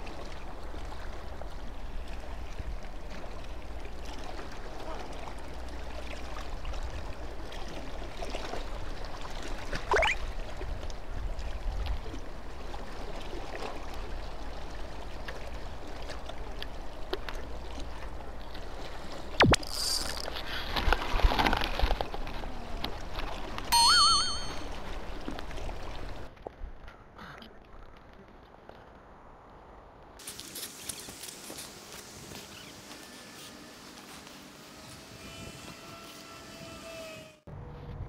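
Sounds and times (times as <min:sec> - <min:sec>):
water sloshing and trickling: 0:00.0 - 0:23.7, 0:24.6 - 0:26.6
short rising whistle: 0:23.8 - 0:24.6.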